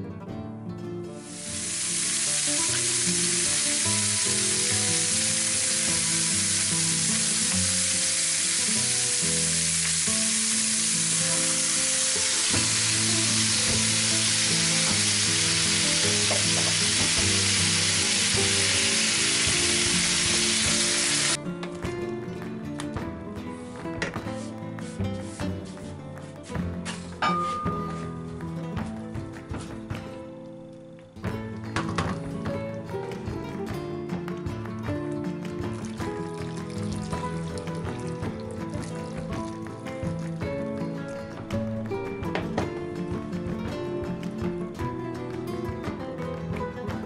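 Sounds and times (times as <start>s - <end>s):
chicken sizzling in a frying pan: 1.2s - 21.4s.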